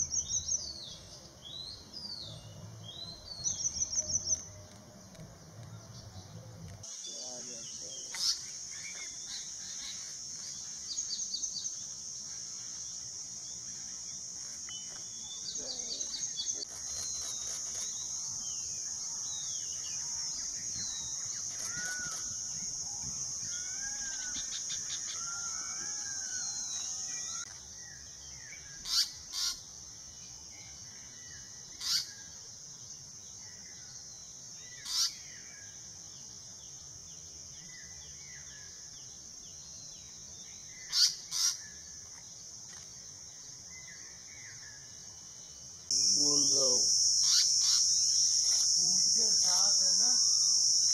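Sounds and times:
birds chirping: 0.0s - 32.2s
high-pitched insect drone: 6.8s - 50.9s
sharp bird calls: 6.9s - 12.8s, 13.6s - 29.7s, 31.7s - 32.3s, 34.7s - 35.4s, 40.8s - 42.0s, 45.9s - 50.9s.

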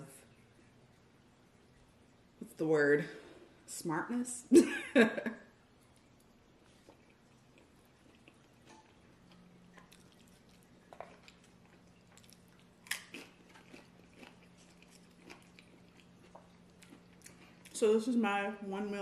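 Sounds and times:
low steady hum: 0.0s - 19.0s
chewing and mouth smacks: 5.8s - 17.8s.

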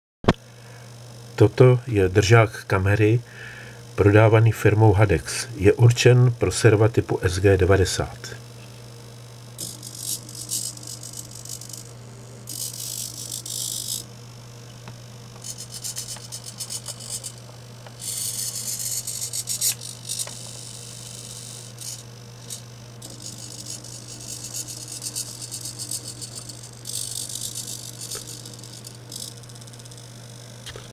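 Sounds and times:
steady low hum: 0.3s - 30.9s
servo motors whirring: 9.6s - 14.1s, 14.8s - 30.9s.

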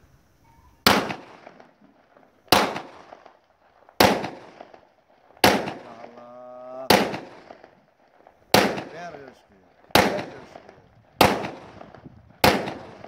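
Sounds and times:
pistol shots echoing: 0.8s - 1.8s, 2.5s - 3.4s, 4.0s - 4.8s, 5.4s - 13.0s.

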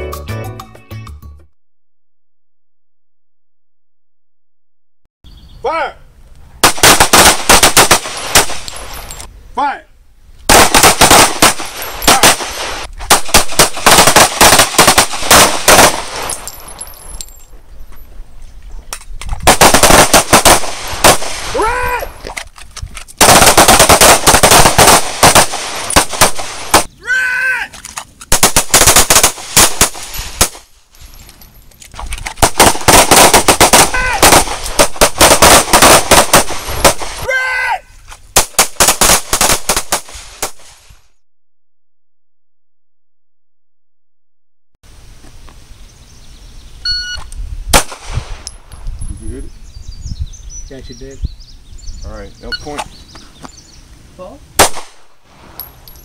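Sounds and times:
rapid pistol shots: 6.6s - 8.7s, 10.5s - 16.3s, 19.4s - 21.5s, 23.2s - 26.9s, 28.3s - 30.6s, 32.4s - 37.2s, 38.4s - 40.6s, 54.6s - 55.1s.

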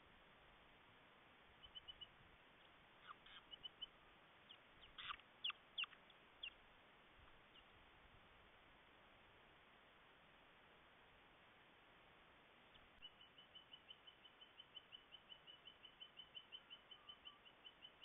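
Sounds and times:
small bird peeping: 1.6s - 6.6s, 7.2s - 7.9s, 12.7s - 18.0s.

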